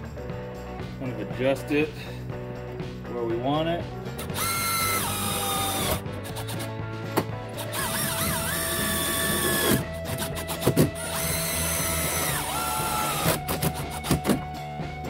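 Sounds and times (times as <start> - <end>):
cordless driver whining: 4.2 - 6.7, 7.6 - 14.5.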